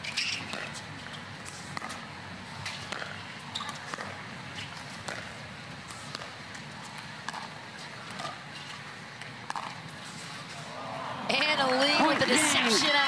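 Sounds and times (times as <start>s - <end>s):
crowd murmur: 10.5s - 13.0s.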